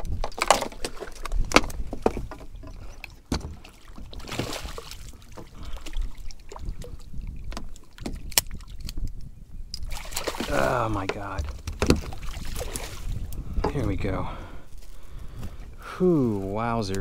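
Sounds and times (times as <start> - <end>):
knocks and rustles on kayak: 0.0 - 9.0, 10.0 - 14.2
wind rumbling on microphone: 0.0 - 17.0.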